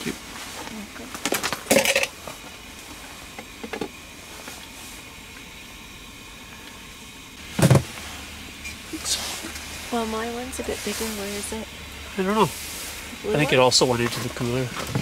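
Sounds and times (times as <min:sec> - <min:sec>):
gas burners hissing: 0:00.0 - 0:15.0
heavy clunk: 0:07.5 - 0:07.9.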